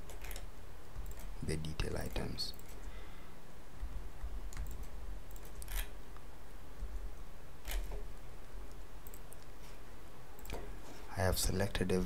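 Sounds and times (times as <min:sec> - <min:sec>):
computer mouse clicks: 0:00.0 - 0:01.3, 0:03.8 - 0:05.9, 0:08.7 - 0:09.5
low steady hum: 0:00.0 - 0:12.0.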